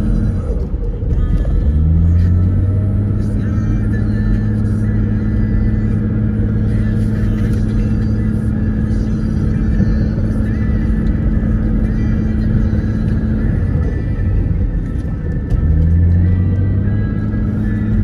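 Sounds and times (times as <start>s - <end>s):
constant hum: 0.0s - 18.0s
engine and tyre drone: 0.0s - 18.0s
music playing: 0.0s - 18.0s.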